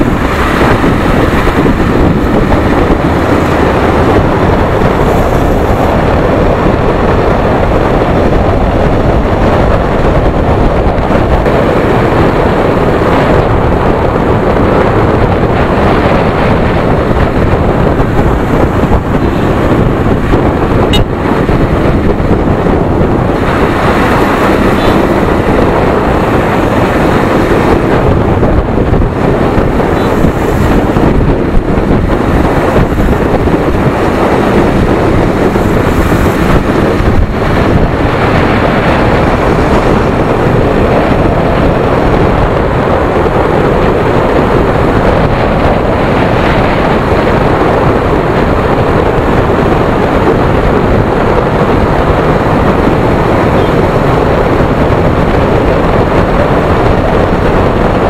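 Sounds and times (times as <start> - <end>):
motorcycle engine: 0.0 - 58.0
wind rushing on microphone: 0.0 - 58.0.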